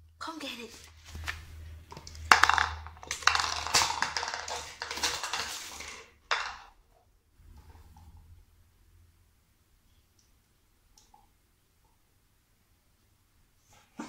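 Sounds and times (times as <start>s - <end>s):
plastic container clattering on tiles: 1.1s - 6.8s.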